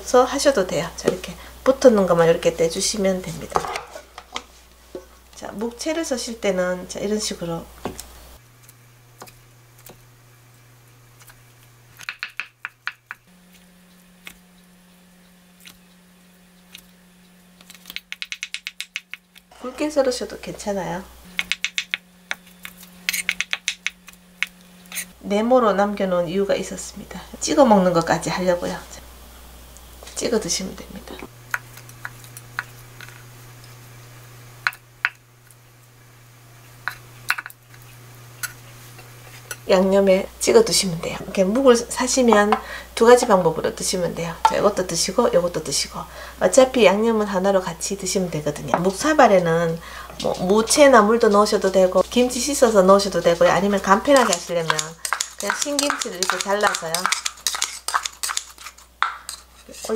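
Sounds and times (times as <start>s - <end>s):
knife tapping wooden board: 12.0s - 13.2s, 18.0s - 19.2s, 54.2s - 59.4s
knife tapping wooden cutting board: 12.0s - 13.2s, 59.0s - 59.4s.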